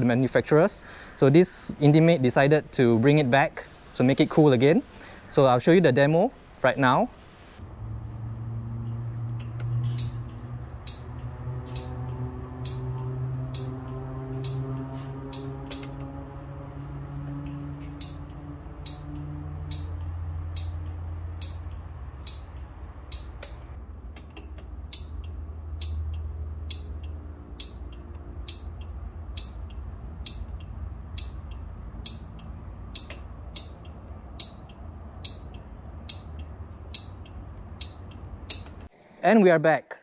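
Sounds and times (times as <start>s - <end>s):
low steady hum: 7.6s - 38.9s
turn signal ticking: 8.5s - 38.9s.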